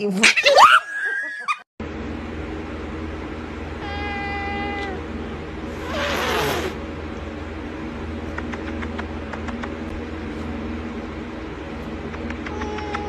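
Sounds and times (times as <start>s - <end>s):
steady low hum: 1.8s - 13.0s
cat hissing: 3.8s - 5.0s, 5.7s - 6.8s, 12.2s - 13.0s.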